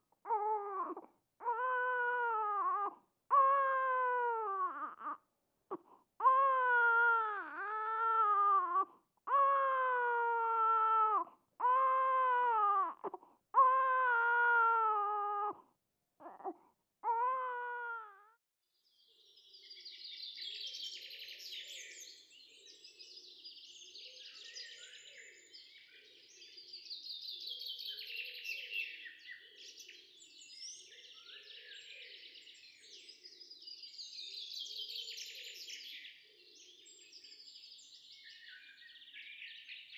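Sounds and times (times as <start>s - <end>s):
infant crying: 0.2s - 15.6s, 16.2s - 18.4s.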